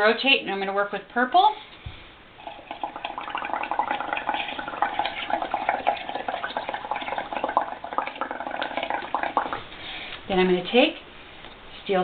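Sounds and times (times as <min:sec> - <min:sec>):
small bubbles popping: 0:02.4 - 0:09.6
bubbling through a straw: 0:02.4 - 0:09.7.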